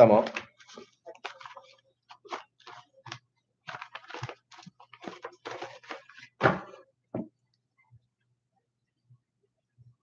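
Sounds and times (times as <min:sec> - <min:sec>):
papers rustling: 0:00.0 - 0:06.7.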